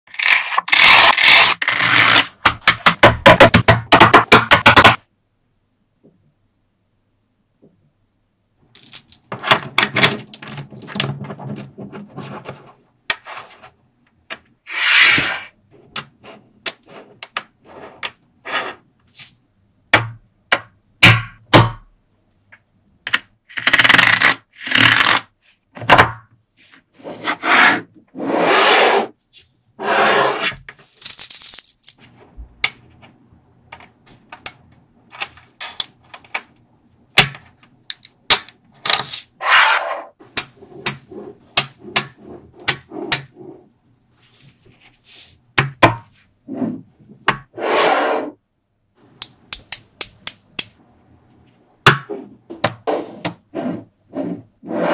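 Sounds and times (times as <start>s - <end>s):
magnetic balls clicking together: 49.2s - 50.8s.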